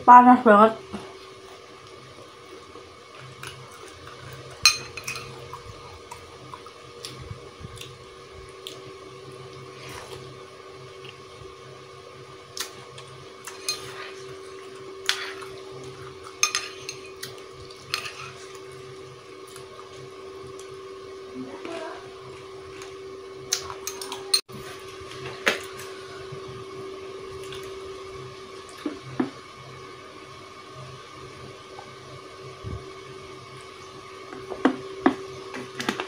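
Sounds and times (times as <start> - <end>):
steady hum: 0.0 - 36.0
metal spoon clinking on bowl: 16.4 - 17.1.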